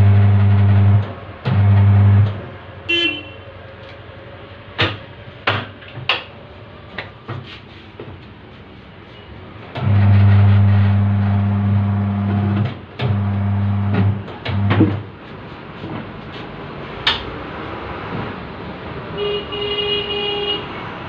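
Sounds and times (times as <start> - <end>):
tyre-changer motor humming: 0.0 - 2.4, 9.8 - 15.1.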